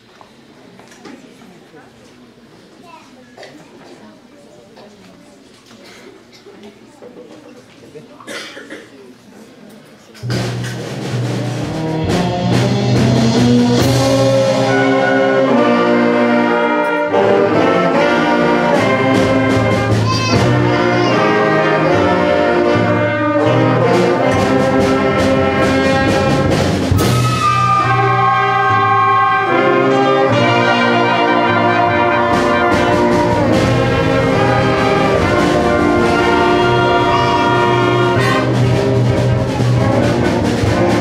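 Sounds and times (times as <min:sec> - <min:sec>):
percussion strikes: 0:10.2 - 0:41.0
brass and woodwind chords: 0:11.6 - 0:41.0.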